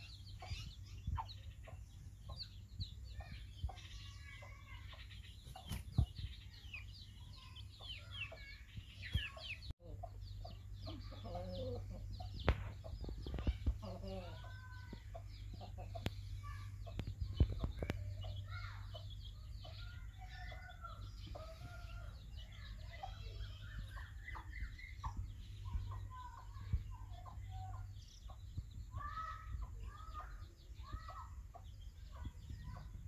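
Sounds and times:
chickens clucking: 0:00.0 - 0:33.0
chicks peeping: 0:00.0 - 0:33.0.

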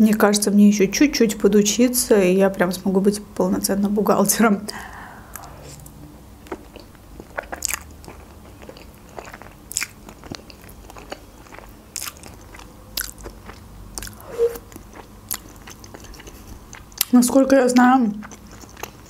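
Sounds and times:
person slurping and chewing noodles: 0:04.8 - 0:17.0.

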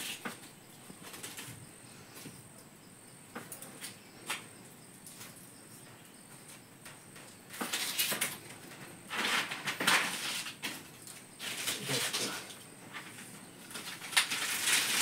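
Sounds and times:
pineapple leaves scraping a basket: 0:00.0 - 0:00.4, 0:07.6 - 0:08.4, 0:09.1 - 0:15.0.

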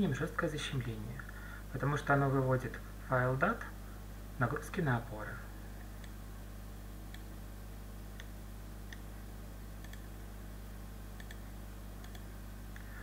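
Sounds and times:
low electrical hum: 0:00.0 - 0:13.0
computer mouse clicks: 0:08.2 - 0:09.1, 0:09.8 - 0:10.1, 0:11.2 - 0:11.4, 0:12.0 - 0:12.9.

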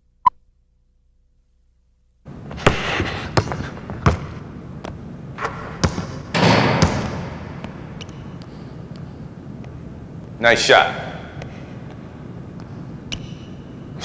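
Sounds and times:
background noise: 0:00.0 - 0:14.0
basketball bouncing: 0:02.5 - 0:08.5.

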